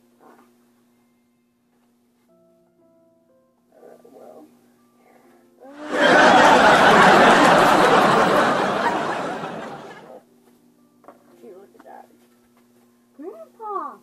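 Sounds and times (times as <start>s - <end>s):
audience laughter: 5.8s - 10.1s.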